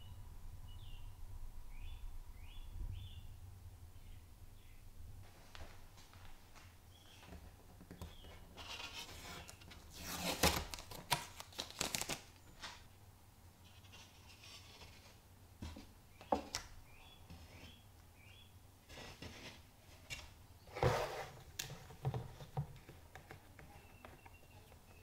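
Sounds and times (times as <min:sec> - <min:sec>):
wood knocking and scraping: 0:19.0 - 0:24.9.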